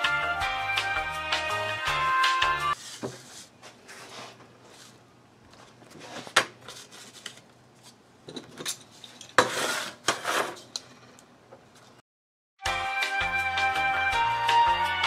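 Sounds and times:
music: 0.0s - 2.8s, 12.6s - 15.0s
paper rustling: 2.8s - 8.0s.

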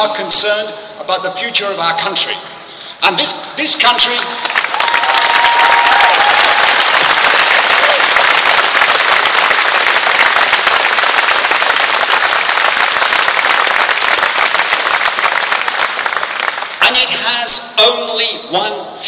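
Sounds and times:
crowd applauding: 4.0s - 17.3s.

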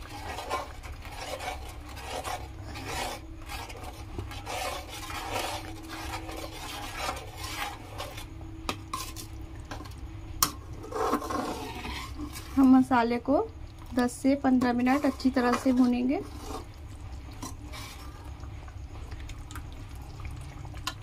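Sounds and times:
metal spoon scraping frying pan: 0.0s - 8.3s, 8.9s - 9.8s, 10.4s - 12.8s, 14.5s - 16.8s, 17.4s - 18.2s.

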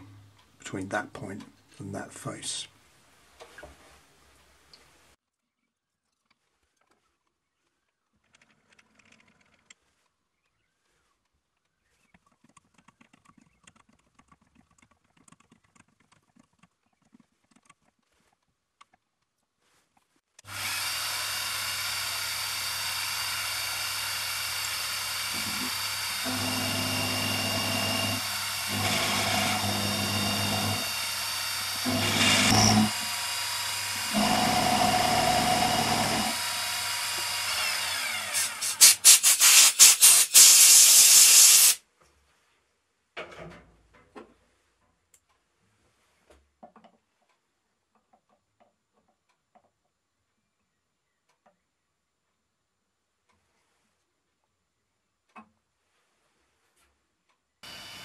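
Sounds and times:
milling machine spindle humming: 20.5s - 39.1s, 57.6s - 58.0s
end mill cutting metal: 20.5s - 41.8s, 57.6s - 58.0s.

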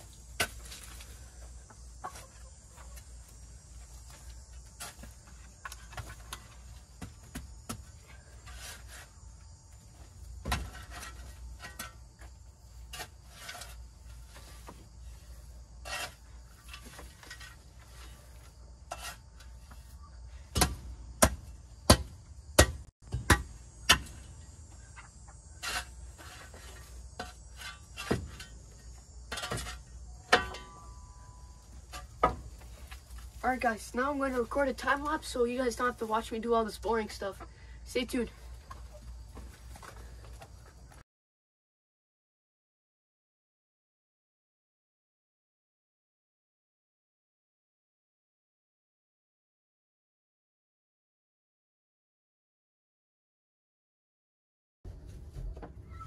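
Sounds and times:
shovel scraping dirt: 0.0s - 2.4s, 7.7s - 24.5s, 25.4s - 36.0s.

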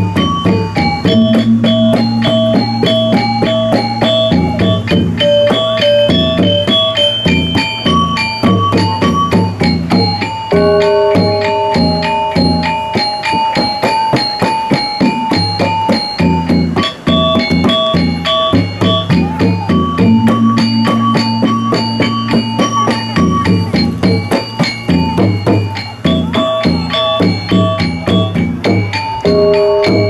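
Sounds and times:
drum strokes: 0.0s - 30.0s
metallophones playing fast runs: 0.0s - 30.0s
deep sustained gong tone: 10.5s - 13.1s, 29.3s - 30.0s.

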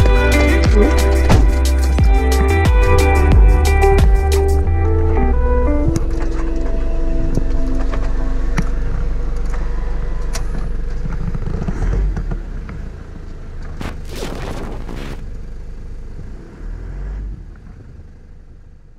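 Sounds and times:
car engine and road rumble: 0.0s - 18.9s
rushing burst: 13.8s - 15.2s.

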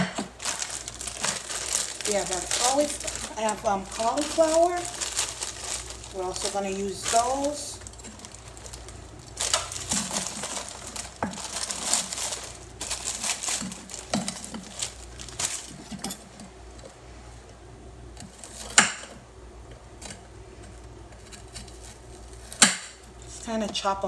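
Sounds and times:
plastic bag rustling: 0.0s - 17.0s, 18.2s - 19.2s, 20.0s - 23.4s
frozen vegetables knocking on board: 9.4s - 12.3s.

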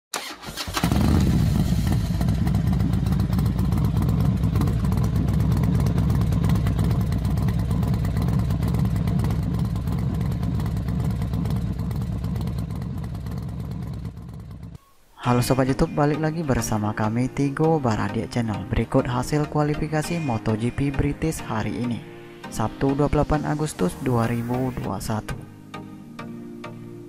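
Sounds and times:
motorcycle engines rumbling: 0.7s - 14.8s.

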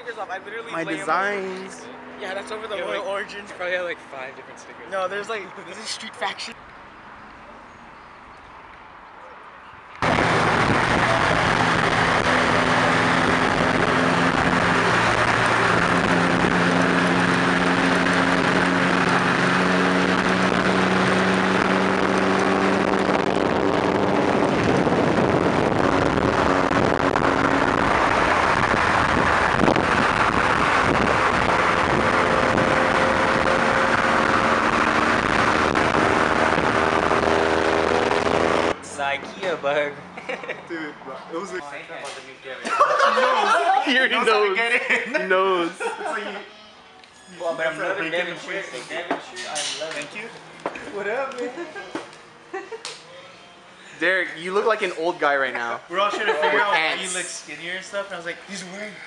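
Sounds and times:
engine and exhaust drone: 0.0s - 6.6s, 9.8s - 42.4s
road noise: 0.0s - 59.0s
wind rush: 10.0s - 38.4s.

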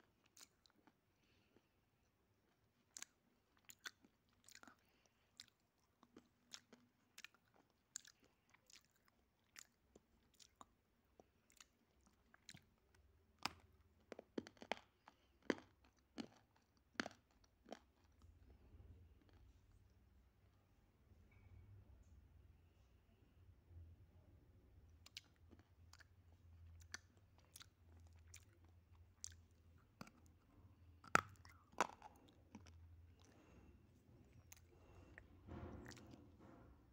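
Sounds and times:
crunching and chewing hard chunk: 2.8s - 18.3s, 25.0s - 36.4s.

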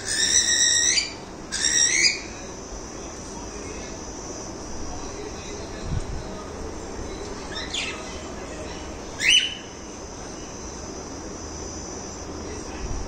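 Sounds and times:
cockatiel calls: 0.0s - 2.3s, 9.2s - 9.7s.

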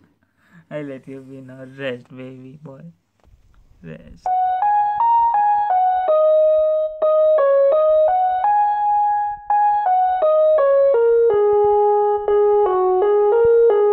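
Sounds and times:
electric piano melody: 4.3s - 13.9s.

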